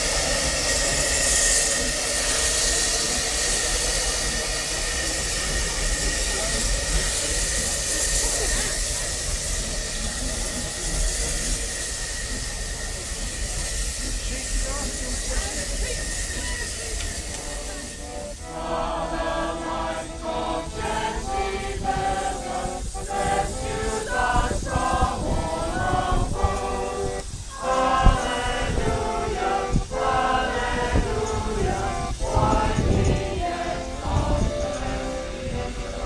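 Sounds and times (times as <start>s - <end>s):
group of people singing: 14.2s - 36.0s.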